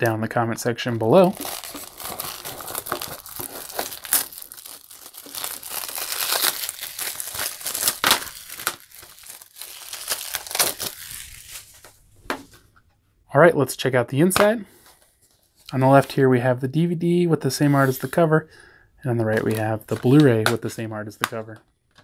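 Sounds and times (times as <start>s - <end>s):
plastic shrink-wrap crinkling and tearing: 1.0s - 12.0s, 19.3s - 20.6s.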